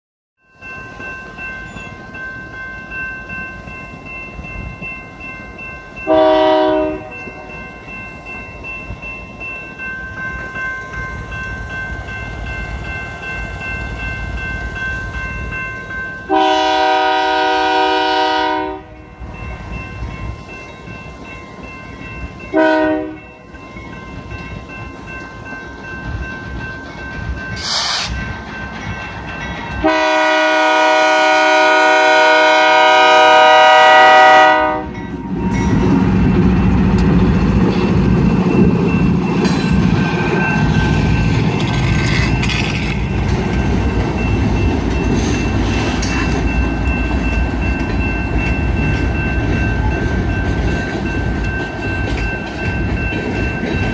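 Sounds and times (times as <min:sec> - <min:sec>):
crossing warning bell ringing: 0:00.4 - 0:53.9
train rumble: 0:00.6 - 0:53.9
locomotive air horn blasts: 0:06.1 - 0:07.2, 0:16.3 - 0:19.0, 0:22.5 - 0:23.2, 0:29.8 - 0:34.9.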